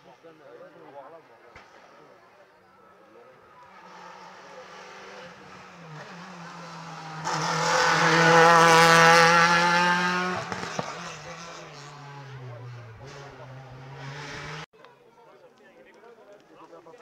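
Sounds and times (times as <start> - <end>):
rally car engine at high revs: 3.7 - 14.7.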